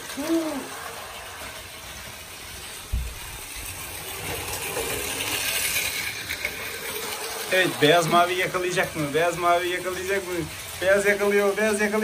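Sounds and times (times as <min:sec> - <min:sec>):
toy train motors whirring and rattling: 0:00.0 - 0:12.0
knock: 0:02.9 - 0:03.2.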